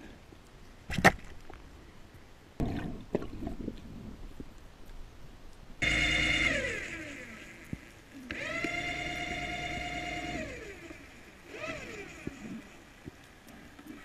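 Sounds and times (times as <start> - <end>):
loud buzzing tone: 5.8 - 7.7, 8.3 - 12.3.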